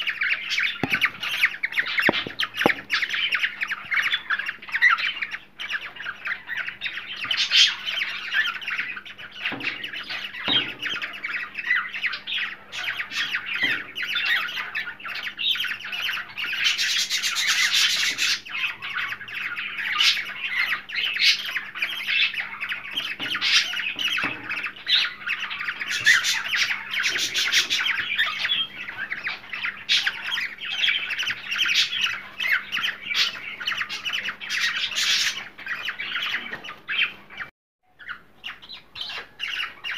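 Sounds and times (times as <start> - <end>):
cockatiels chattering and squawking: 0.0 - 39.9.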